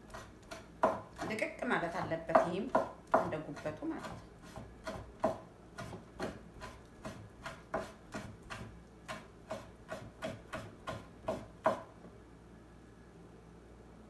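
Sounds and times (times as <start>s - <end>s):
knife chopping on cutting board: 0.1s - 1.4s, 2.3s - 11.9s.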